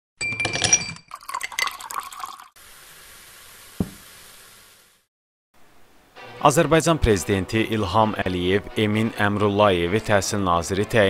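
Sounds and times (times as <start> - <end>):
glass clinking: 0.2 - 2.5
drink poured into a glass: 1.1 - 2.6
fizzing hiss: 2.0 - 5.1
low thump: 3.8 - 4.0.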